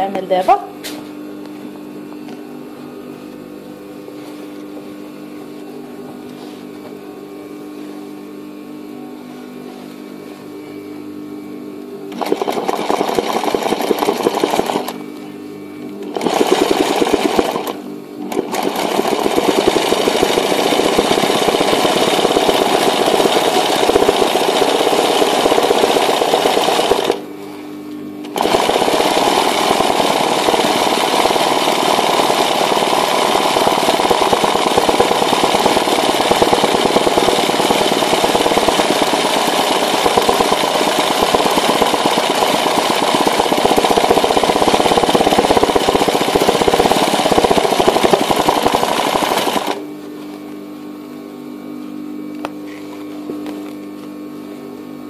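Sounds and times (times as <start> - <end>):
sewing machine running fast: 12.1 - 15.0, 16.0 - 27.3, 28.2 - 49.8.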